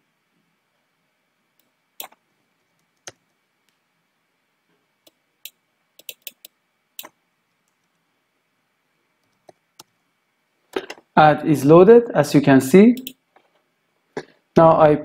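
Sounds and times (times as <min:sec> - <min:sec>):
mouse and keyboard clicks: 0:01.6 - 0:02.2, 0:05.4 - 0:08.0, 0:13.0 - 0:13.2.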